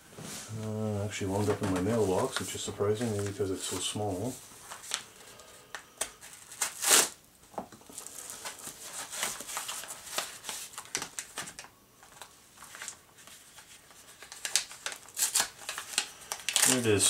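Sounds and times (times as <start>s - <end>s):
paper rustling and crinkling: 1.2s - 7.1s, 7.7s - 17.0s
envelope slit with blade: 6.6s - 7.2s.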